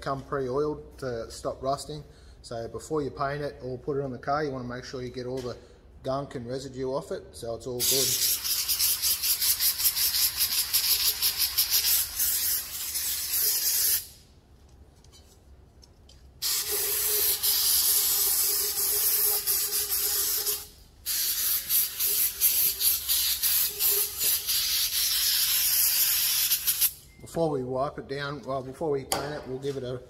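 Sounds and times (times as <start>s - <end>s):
aerosol spray hissing: 7.8s - 14.2s, 16.4s - 27.0s.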